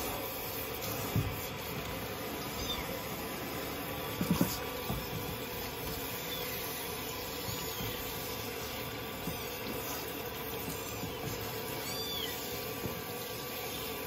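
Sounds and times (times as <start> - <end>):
water spraying from shower head: 0.0 - 14.0.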